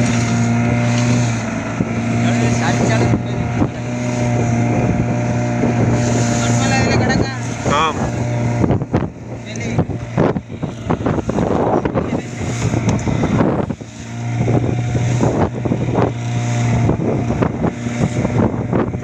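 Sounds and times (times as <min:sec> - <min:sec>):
boat engine running: 0:00.0 - 0:19.0
wind buffeting microphone: 0:00.0 - 0:19.0.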